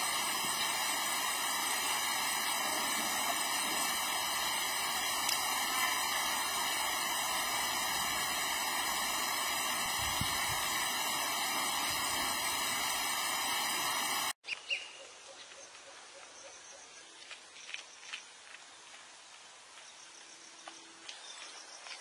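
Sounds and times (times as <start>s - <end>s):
loud steady hiss: 0.0s - 14.4s
outdoor ambience: 0.0s - 22.0s
bird chirps: 14.4s - 18.2s.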